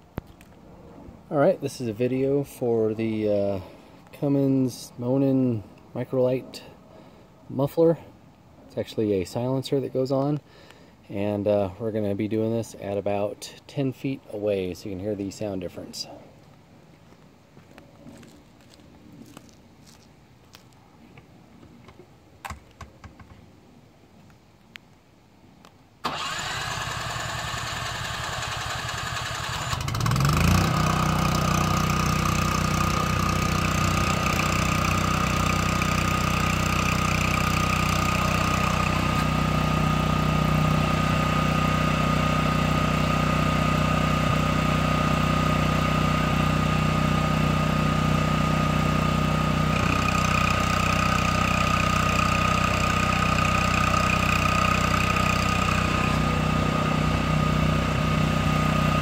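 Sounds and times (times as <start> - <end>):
generator starter cranking: 26.0 - 40.2, 49.5 - 56.6
generator engine running: 26.1 - 59.0.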